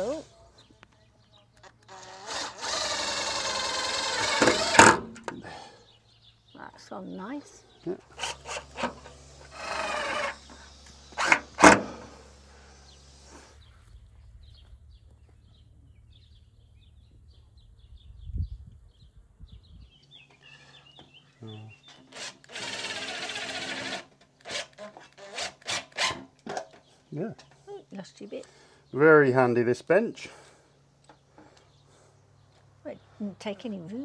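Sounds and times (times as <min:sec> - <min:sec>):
cordless drill whirring: 0:01.7 - 0:05.0, 0:08.0 - 0:13.7, 0:22.1 - 0:26.2.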